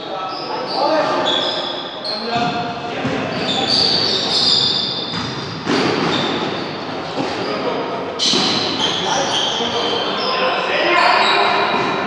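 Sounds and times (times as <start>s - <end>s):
voices in sports hall: 0.0s - 12.0s
sneakers squeaking on court: 0.1s - 12.0s
basketball bouncing: 5.0s - 6.7s.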